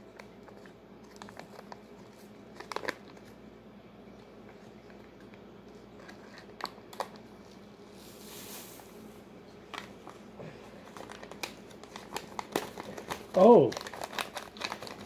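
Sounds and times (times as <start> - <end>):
packet crinkling: 0.1 - 3.4, 9.7 - 15.0.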